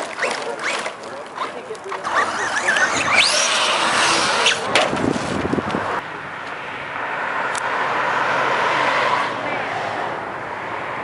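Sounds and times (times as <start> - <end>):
car passing on road: 2.7 - 11.0
low thuds of truck landing: 4.7 - 5.6.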